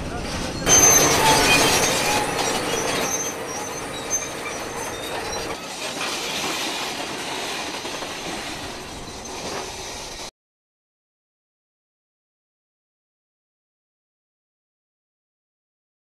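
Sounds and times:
bulldozer engine: 0:00.0 - 0:07.0
high-pitched track squeals: 0:00.4 - 0:06.4.

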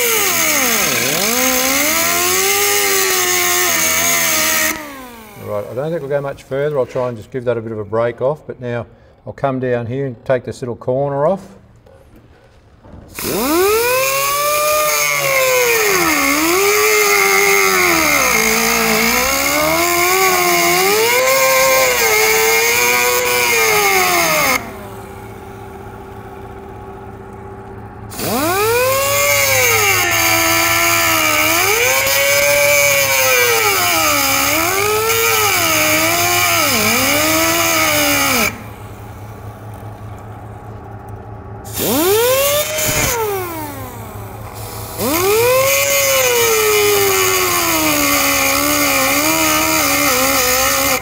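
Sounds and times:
power cutting tool slicing steel: 0:00.0 - 0:07.1, 0:13.1 - 0:25.4, 0:28.1 - 0:39.9, 0:41.7 - 0:51.0.

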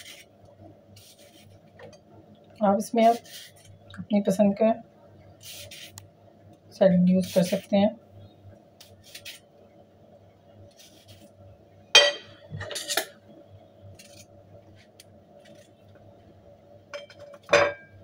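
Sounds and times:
faint steady hum: 0:00.0 - 0:18.0
metal clinking on ceramic plate: 0:17.0 - 0:17.9.

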